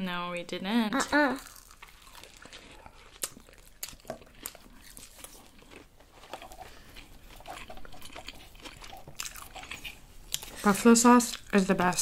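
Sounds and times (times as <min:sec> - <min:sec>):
sharp crunches of biting: 0:01.4 - 0:10.6
chewing with wet mouth sounds: 0:01.4 - 0:12.0.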